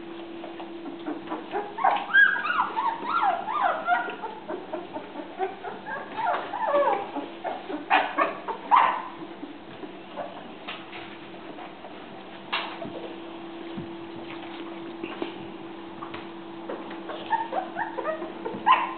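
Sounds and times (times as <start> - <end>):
puppies whimpering and squealing: 0.6 - 9.2, 16.7 - 18.9.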